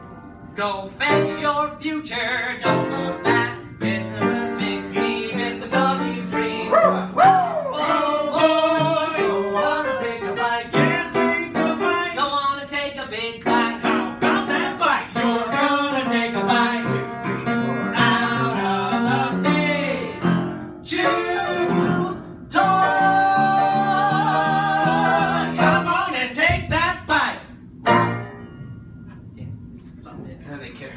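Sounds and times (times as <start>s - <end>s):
piano accompaniment: 0.0s - 26.2s, 27.8s - 29.9s
men singing a show tune: 0.6s - 17.1s, 17.9s - 20.2s, 20.9s - 26.5s.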